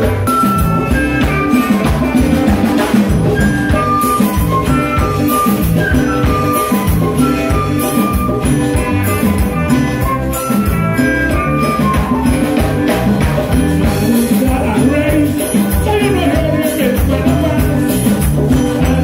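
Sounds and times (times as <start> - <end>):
saxophone melody: 0.0 - 14.0
congas: 0.0 - 19.0
drum kit: 0.0 - 19.0
electric guitar: 0.0 - 19.0.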